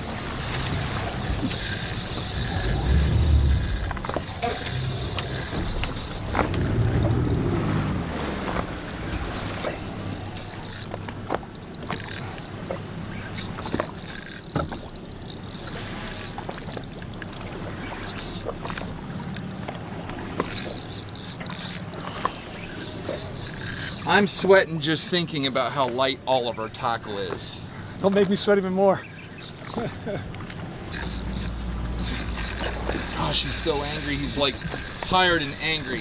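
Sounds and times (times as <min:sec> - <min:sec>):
small clicks: 0:00.0 - 0:07.4, 0:09.3 - 0:24.1, 0:29.1 - 0:29.8, 0:30.4 - 0:36.0
boat engine rumble: 0:00.0 - 0:36.0
sea water noise: 0:00.0 - 0:36.0
wind: 0:00.0 - 0:36.0.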